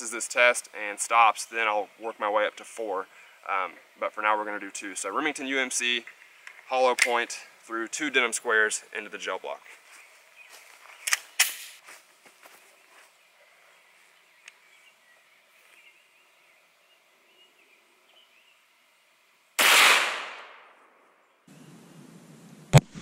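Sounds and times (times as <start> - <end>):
faint outdoor background: 0.0 - 23.0
pistol shot: 19.6 - 20.8.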